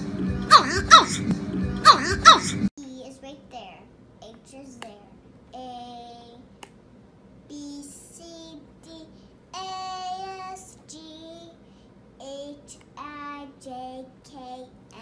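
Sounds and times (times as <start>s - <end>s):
girl singing: 4.2s - 6.5s, 7.5s - 11.6s, 12.2s - 15.0s.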